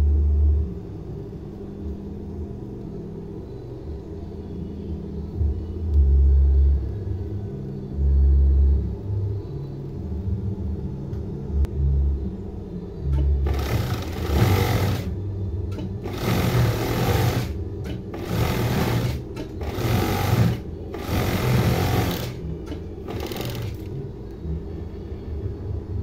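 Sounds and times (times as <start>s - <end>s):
low motor hum: 10.1s - 26.0s
sewing machine stitching: 13.4s - 15.2s, 15.8s - 23.9s.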